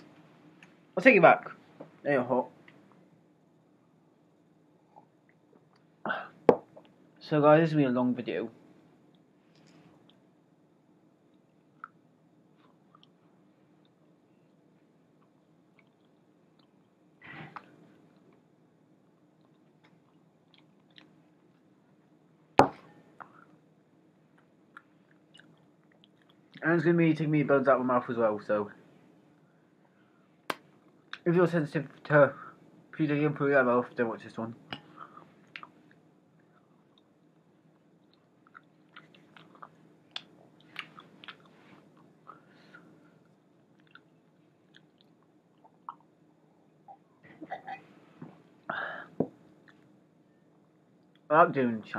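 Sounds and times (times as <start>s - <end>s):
mouth clicks of chewing: 24.7s - 26.6s, 38.0s - 42.1s, 43.8s - 44.1s, 44.7s - 46.1s.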